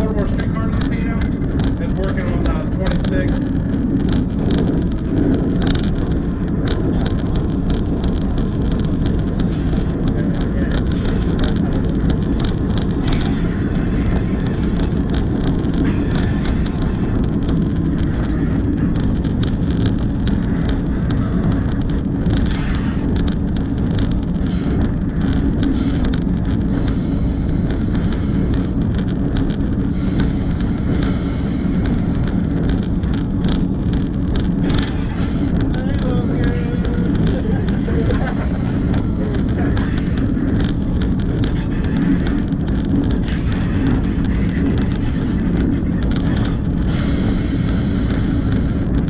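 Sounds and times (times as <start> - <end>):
light clicks and rattles: 0.0 - 49.0
locomotive rumbling: 0.0 - 49.0
wind on microphone: 0.0 - 49.0.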